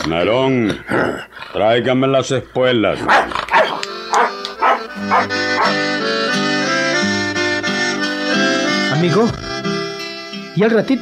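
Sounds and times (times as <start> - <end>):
dog barking: 3.0 - 5.8.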